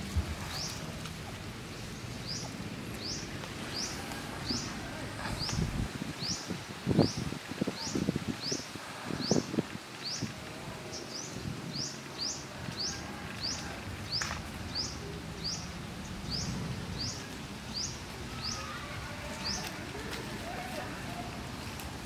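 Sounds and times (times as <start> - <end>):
leaves and undergrowth rustling: 0.0 - 22.0.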